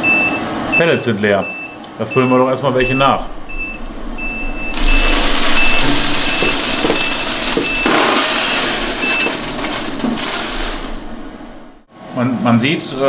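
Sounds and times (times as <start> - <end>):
short electronic beeps: 1.4 - 11.0
pellets pouring into steel hopper: 4.7 - 11.8.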